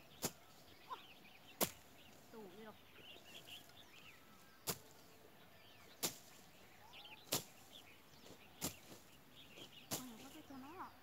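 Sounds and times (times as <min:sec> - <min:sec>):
birds chirping faintly: 0:00.0 - 0:11.0
machete slashing through grass: 0:06.0 - 0:06.4, 0:07.2 - 0:07.6.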